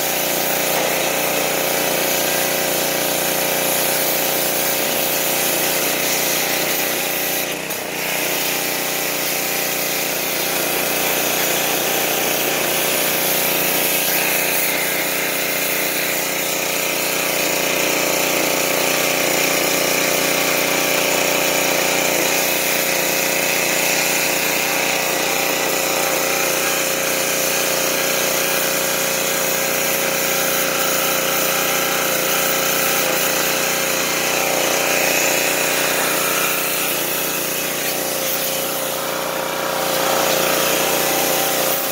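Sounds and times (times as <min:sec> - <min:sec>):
water jet hissing on metal: 0:00.0 - 0:17.7, 0:18.4 - 0:41.9
pressure washer engine running: 0:00.0 - 0:41.9.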